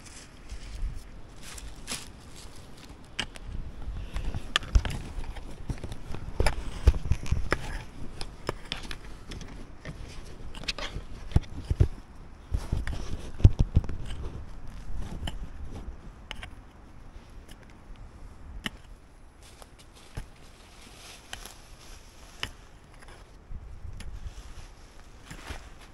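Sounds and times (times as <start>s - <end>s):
tool scraping earth: 0.0s - 17.8s, 18.7s - 25.9s
hand tools striking soil: 21.2s - 23.2s.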